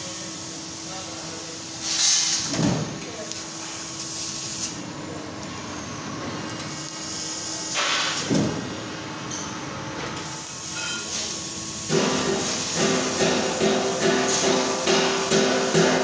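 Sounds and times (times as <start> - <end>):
metal-cutting machine hiss and hum: 0.0 - 2.6, 3.2 - 4.9, 6.3 - 8.4, 10.2 - 16.0.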